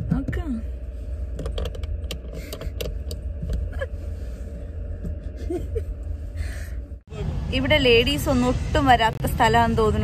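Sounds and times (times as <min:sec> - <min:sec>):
low steady rumble: 0:00.0 - 0:10.0
person laughing softly: 0:03.6 - 0:04.3.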